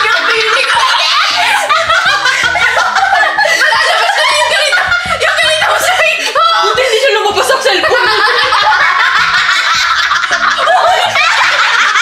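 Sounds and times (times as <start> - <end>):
women laughing together: 0.0 - 12.0.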